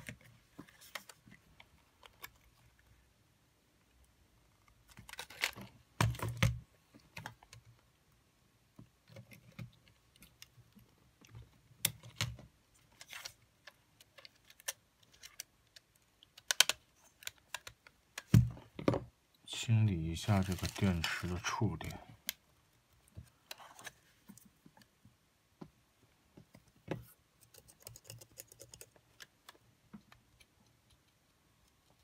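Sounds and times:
small parts clicking and tapping: 0:09.0 - 0:18.9.

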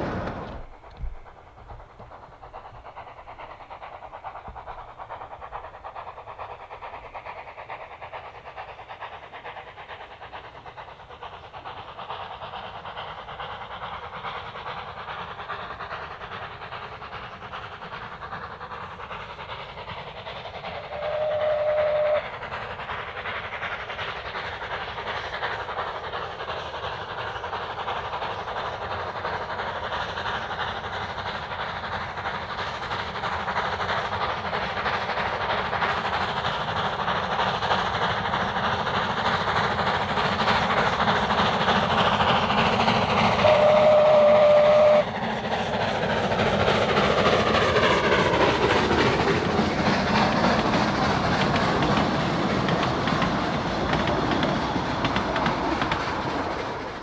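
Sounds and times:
steam locomotive running: 0:00.0 - 0:57.0
short train whistle blast: 0:20.8 - 0:22.3, 0:43.4 - 0:45.2.

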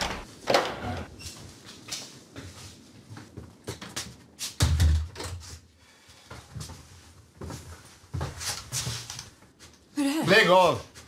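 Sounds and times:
footsteps and scuffs: 0:01.2 - 0:04.6, 0:06.3 - 0:09.8.

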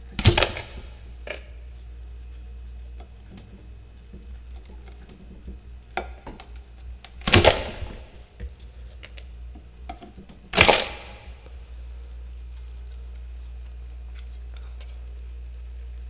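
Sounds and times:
ticks and crackles of frost: 0:00.1 - 0:07.7.

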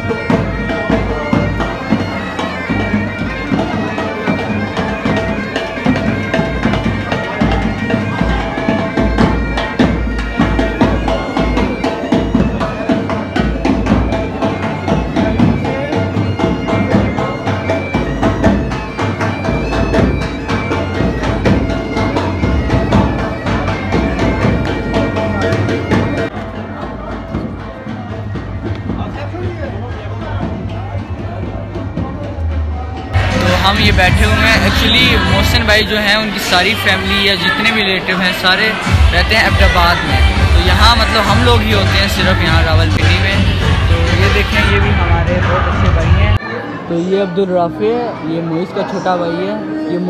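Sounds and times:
drums beating: 0:00.0 - 0:46.6
bagpipes with drones: 0:00.0 - 0:50.0.

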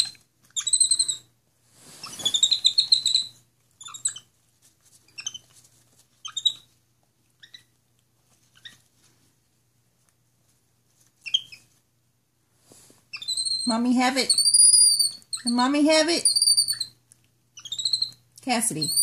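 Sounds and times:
monkey chirps: 0:00.0 - 0:01.3, 0:02.0 - 0:04.3, 0:05.1 - 0:05.5, 0:06.2 - 0:06.7, 0:07.4 - 0:07.7, 0:08.6 - 0:08.8, 0:11.2 - 0:11.7, 0:13.1 - 0:17.0, 0:17.6 - 0:18.2, 0:18.8 - 0:19.0
monkey squeaky whistling calls: 0:00.0 - 0:01.3, 0:02.0 - 0:04.2, 0:06.2 - 0:06.6, 0:13.1 - 0:15.6, 0:16.2 - 0:17.0, 0:17.6 - 0:18.2, 0:18.8 - 0:19.0.

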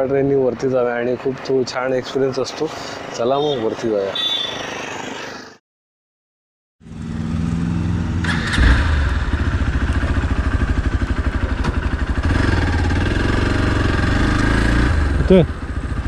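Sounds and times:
motorcycle engine running: 0:06.8 - 0:16.0.

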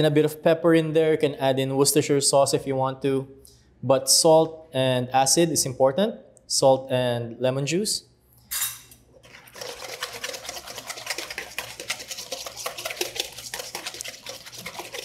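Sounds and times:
whisk swishing: 0:09.2 - 0:15.0
whisk wires clicking on metal bowl: 0:09.3 - 0:15.0.

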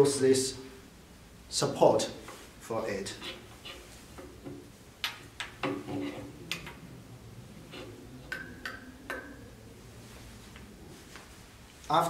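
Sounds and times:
glassware clicks and knocks: 0:08.3 - 0:09.4.

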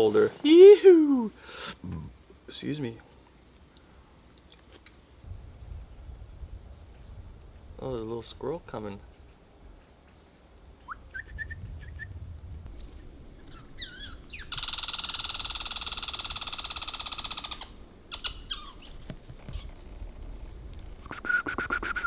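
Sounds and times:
squirrel chirps: 0:13.4 - 0:19.0
squirrel rattling chatter: 0:13.4 - 0:19.6.

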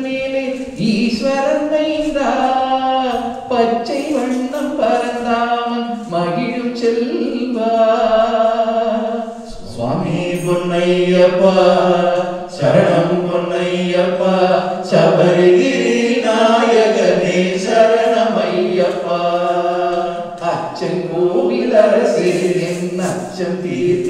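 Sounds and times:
men singing a devotional chant: 0:00.0 - 0:24.0.

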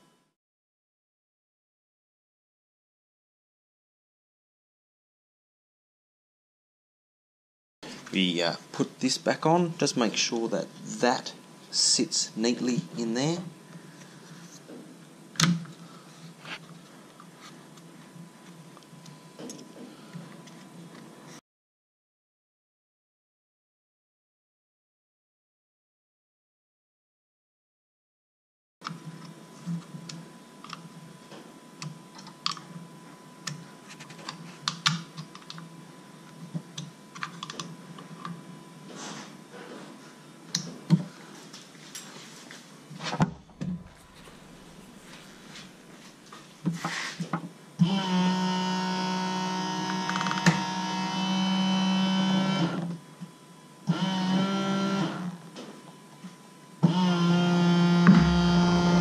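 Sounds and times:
hydraulic pump humming: 0:43.2 - 0:46.1, 0:56.9 - 0:59.0.

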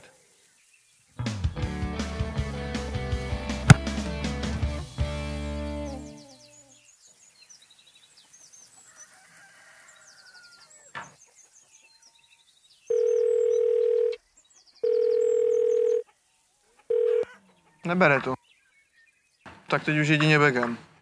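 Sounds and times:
faint bird chirps: 0:05.9 - 0:19.4
phone ringback beep: 0:12.9 - 0:14.2, 0:14.8 - 0:16.0, 0:16.9 - 0:17.3.

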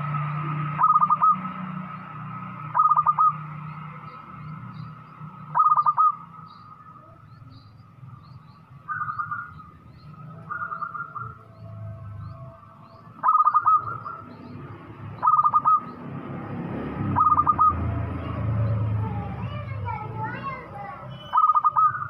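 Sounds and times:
dove cooing: 0:00.7 - 0:01.6, 0:02.7 - 0:04.2, 0:05.5 - 0:06.2, 0:08.9 - 0:11.5, 0:13.2 - 0:14.4, 0:15.2 - 0:15.9, 0:17.2 - 0:20.6, 0:21.3 - 0:22.0.

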